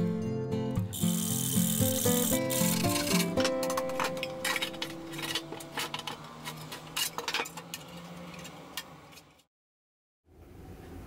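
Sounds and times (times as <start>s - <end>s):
metal tray clinking in metal box: 2.4s - 8.1s.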